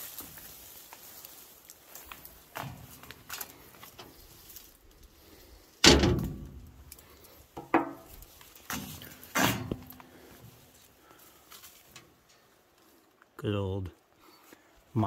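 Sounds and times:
metal bangs on steel body: 5.8s - 6.7s.

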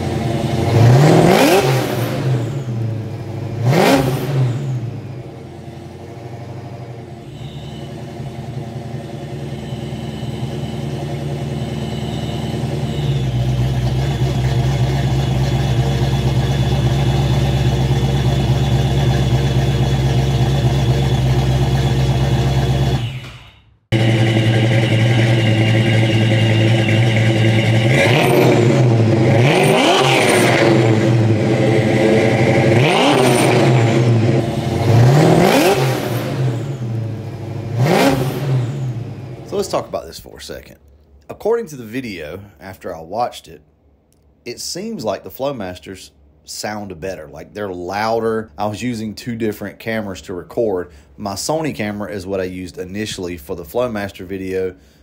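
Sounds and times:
car engine idling and revving: 0.0s - 40.0s.

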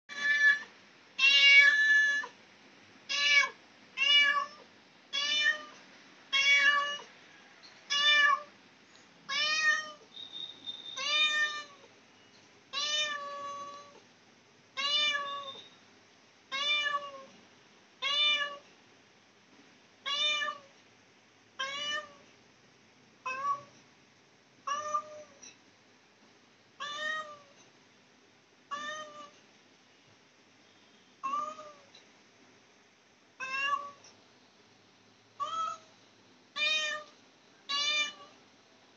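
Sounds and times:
cat meowing: 0.1s - 2.4s, 3.1s - 7.1s, 7.9s - 8.5s, 9.3s - 10.1s, 11.0s - 11.9s, 12.7s - 14.0s, 14.8s - 15.7s, 16.5s - 17.3s, 20.0s - 20.7s, 21.6s - 22.2s, 23.3s - 23.7s, 24.7s - 25.4s, 26.8s - 27.6s, 28.7s - 29.4s, 31.2s - 31.9s, 33.4s - 34.0s, 35.4s - 35.9s, 36.6s - 37.1s, 37.7s - 38.4s.

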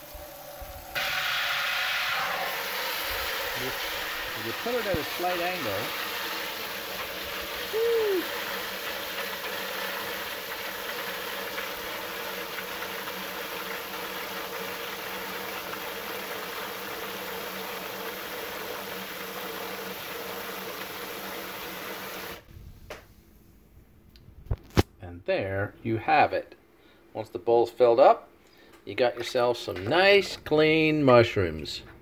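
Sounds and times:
faucet spraying into bowl of water: 0.0s - 22.4s.

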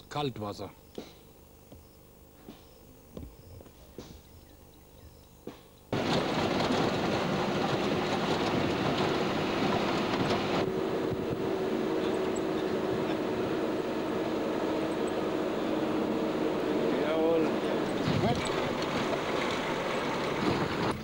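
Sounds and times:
steady low hum: 0.0s - 21.0s
vehicle driving on a dirt track: 5.9s - 21.0s.

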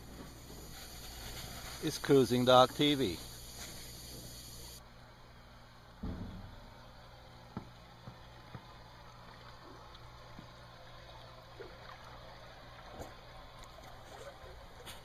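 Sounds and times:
low steady hum: 0.0s - 15.0s
water lapping and gurgling: 7.9s - 15.0s.

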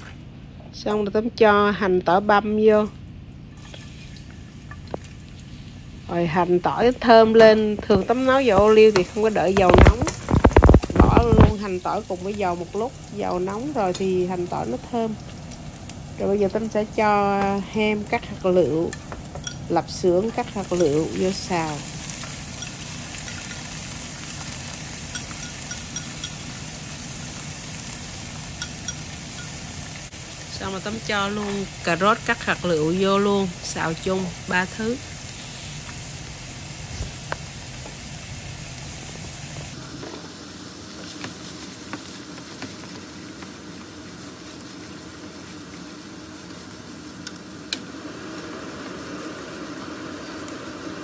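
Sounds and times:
oil sizzling in a frying pan: 3.5s - 51.0s
chopsticks clicking on pan: 25.1s - 26.4s, 28.6s - 29.6s.

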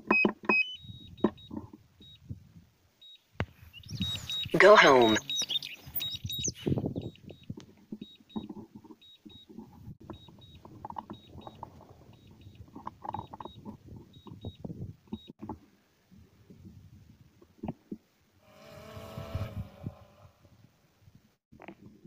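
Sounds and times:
remote controller double beeps: 0.0s - 2.2s, 3.0s - 9.5s, 10.1s - 14.6s.

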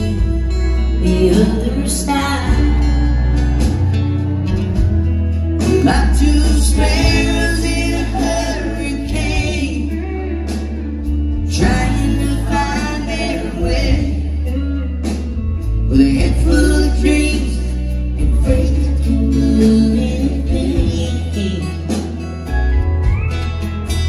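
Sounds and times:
live country band playing: 0.0s - 24.0s
woman singing into microphone: 1.0s - 3.2s.

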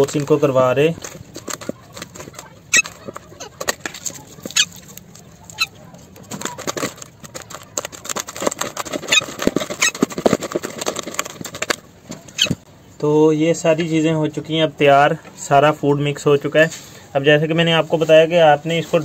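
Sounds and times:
eggshell crackling: 0.0s - 12.7s
squelching: 0.0s - 12.7s
small squeaky clicks: 1.0s - 10.1s, 11.6s - 12.6s.

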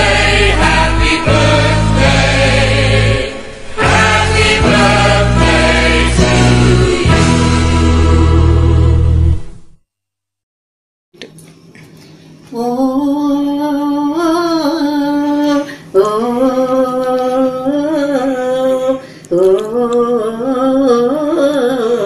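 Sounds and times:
woman singing without words: 12.5s - 22.0s.

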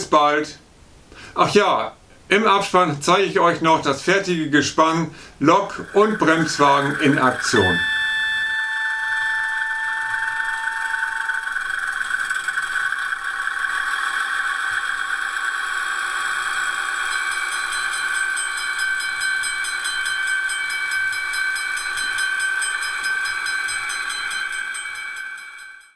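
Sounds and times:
fast even ticking: 3.6s - 7.9s.

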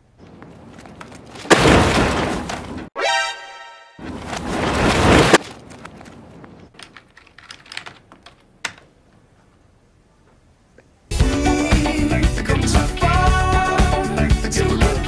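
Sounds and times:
computer keyboard typing: 6.7s - 8.8s.

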